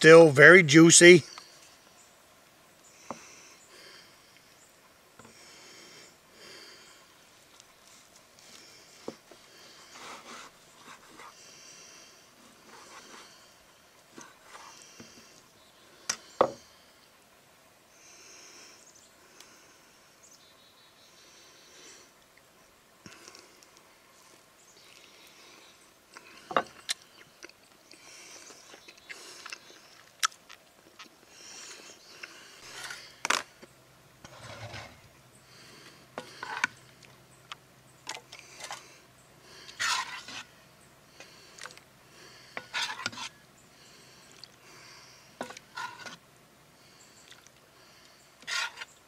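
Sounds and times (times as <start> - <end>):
metal ladle scraping and knocking pot: 45.4 - 46.2.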